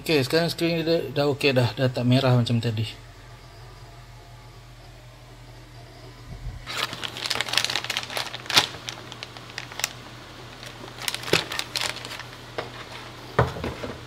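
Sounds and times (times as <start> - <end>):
steady low hum: 0.0 - 14.0
crinkling rustles: 6.6 - 14.0.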